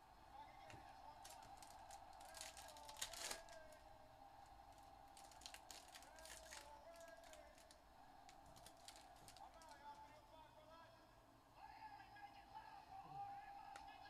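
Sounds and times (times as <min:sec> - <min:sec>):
foil pack crinkling and tearing: 0:01.2 - 0:03.7, 0:05.2 - 0:07.7, 0:08.4 - 0:09.8.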